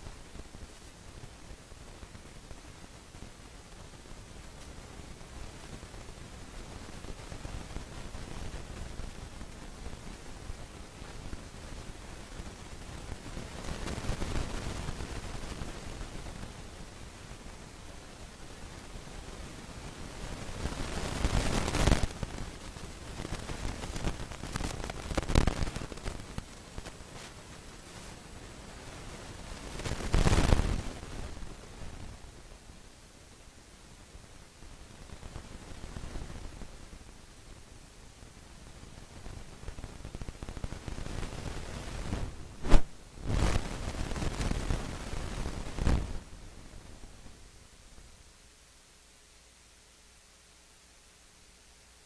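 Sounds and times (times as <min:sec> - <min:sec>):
crackling rustling bursts: 0:00.0 - 0:48.4
steady hiss: 0:00.0 - 0:52.0
rustling on microphone: 0:19.6 - 0:32.3, 0:38.9 - 0:47.3.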